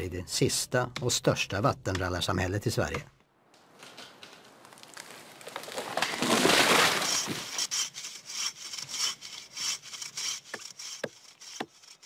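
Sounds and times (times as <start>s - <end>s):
wood cracking and breaking: 3.6s - 7.6s
tree falling thump: 3.9s - 7.4s
saw cutting timber: 6.1s - 12.0s.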